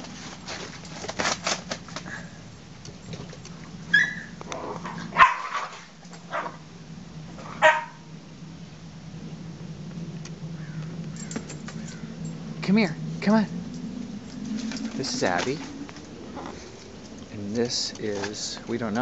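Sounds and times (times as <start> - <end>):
rustling and clicking: 0.0 - 3.8, 10.2 - 12.4, 13.7 - 19.0
puppies yipping and barking: 3.9 - 4.4, 7.6 - 8.0.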